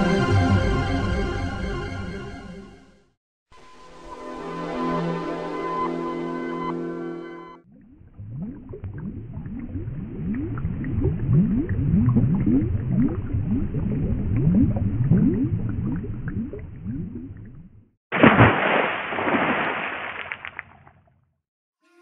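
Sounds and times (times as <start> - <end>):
sustained synth chord: 0.0 - 2.8
underwater bubble blips: 7.7 - 21.1.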